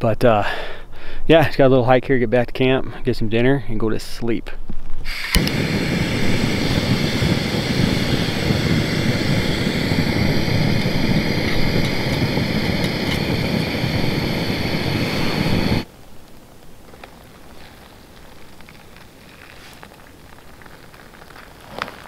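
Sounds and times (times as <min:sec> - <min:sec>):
gas burner hissing: 0:05.0 - 0:15.9.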